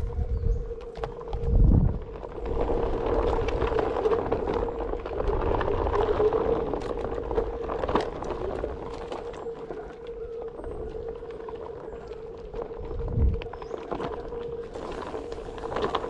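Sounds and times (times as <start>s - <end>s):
skateboard wheels rolling on dirt: 0.0s - 16.0s.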